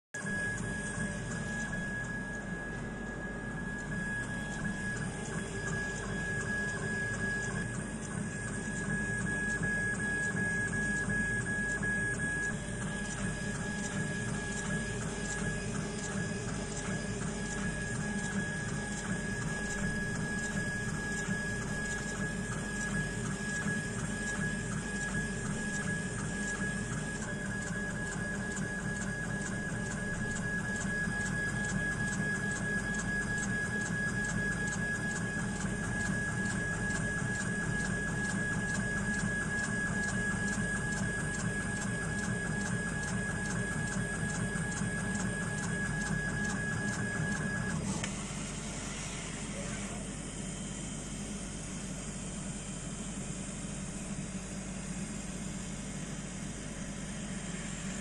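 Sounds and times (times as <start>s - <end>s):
low machine hum: 0.2s - 31.8s
laser head motor whine: 0.2s - 58.0s.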